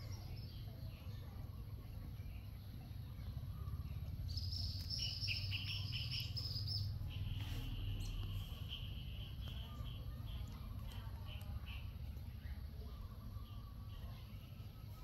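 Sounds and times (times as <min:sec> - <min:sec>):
low steady rumble: 0:00.0 - 0:15.0
small birds chirping: 0:00.0 - 0:15.0.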